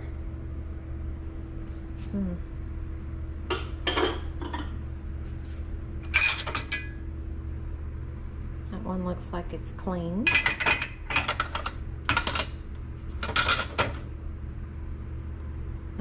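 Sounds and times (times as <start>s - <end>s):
low hum: 0.0s - 16.0s
glassware clinking: 3.5s - 4.7s, 6.2s - 7.0s, 10.3s - 12.4s.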